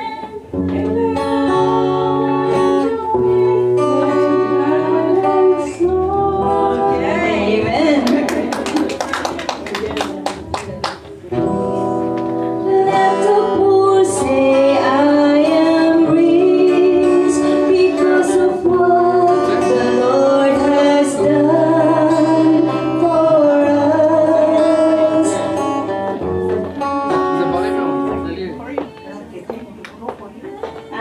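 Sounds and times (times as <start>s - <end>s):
person singing worship song: 0.0s - 8.9s, 12.6s - 25.9s.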